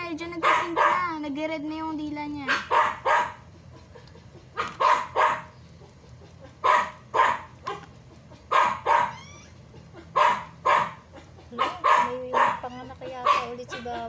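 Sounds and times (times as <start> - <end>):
dog barking: 0.4 - 1.2, 2.5 - 9.3, 9.9 - 14.0.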